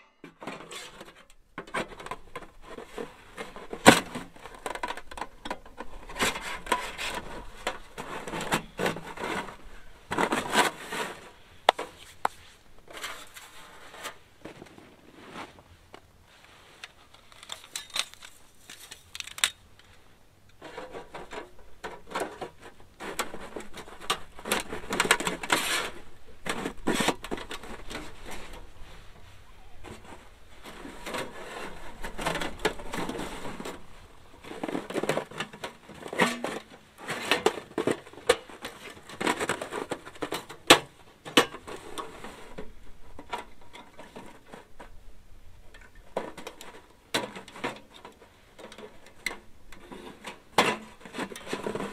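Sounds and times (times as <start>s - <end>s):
sheet-metal panels clinking and scraping: 29.9s - 42.6s.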